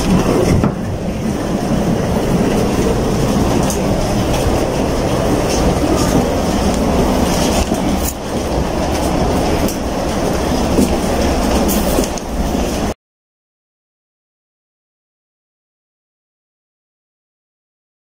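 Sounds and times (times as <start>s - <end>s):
knocks and clatter: 0.0s - 0.9s, 2.6s - 12.9s
rumble of footsteps in a walkway: 0.0s - 13.0s.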